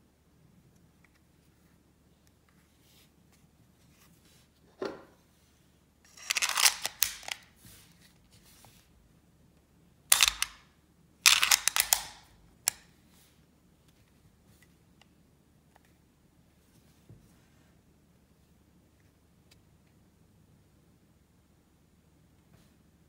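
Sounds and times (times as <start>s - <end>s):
pistol parts clicking: 6.2s - 7.4s, 10.1s - 10.7s, 11.3s - 12.8s.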